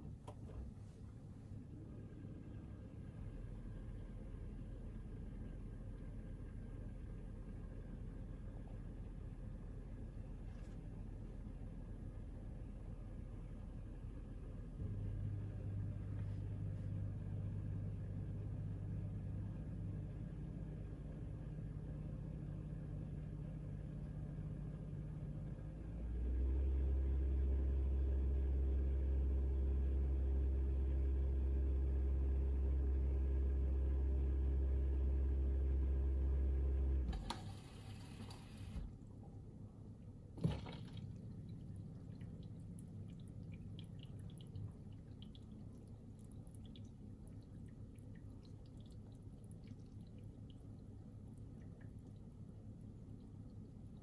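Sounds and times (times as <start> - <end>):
dishwasher pump hum: 36.9 - 54.0
water trickling and dripping: 40.4 - 54.0.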